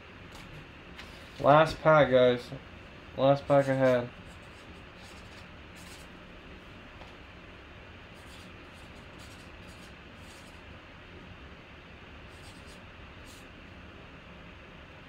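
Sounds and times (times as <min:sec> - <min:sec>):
steady room hiss: 0:00.0 - 0:15.0
cards rustling and scratching: 0:03.5 - 0:06.1.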